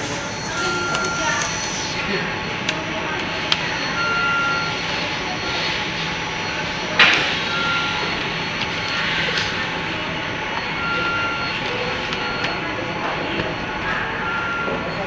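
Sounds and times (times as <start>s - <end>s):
factory background hiss: 0.0s - 3.0s.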